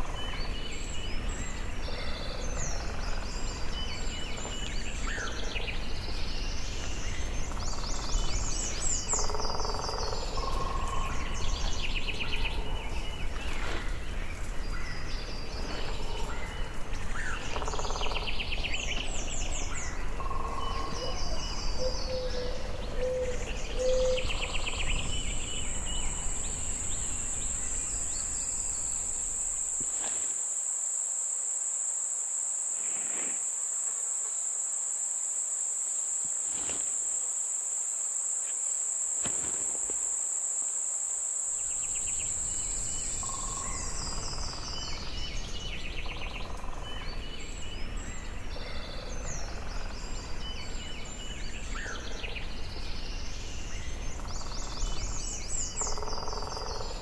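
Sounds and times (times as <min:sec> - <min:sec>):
birds chirping and singing: 0:00.0 - 0:30.2
high insect trill: 0:00.0 - 0:57.0.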